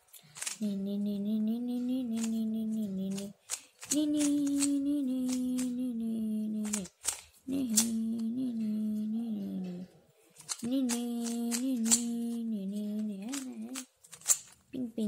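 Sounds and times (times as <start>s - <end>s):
boy humming: 0.0s - 13.9s
puzzle cube clicking: 0.2s - 0.6s, 2.1s - 5.8s, 6.6s - 8.3s, 10.4s - 14.7s.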